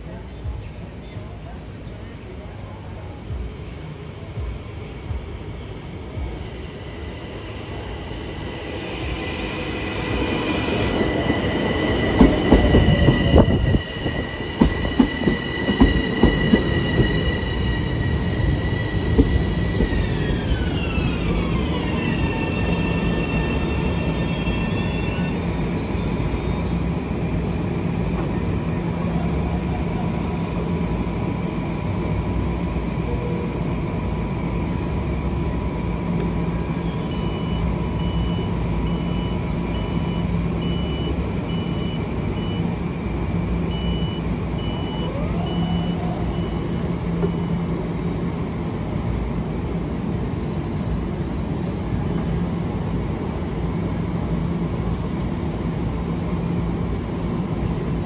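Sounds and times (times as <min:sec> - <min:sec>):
train rumble: 0:00.0 - 0:58.0
train whine: 0:00.0 - 0:58.0
train wheels clattering: 0:12.1 - 0:17.2.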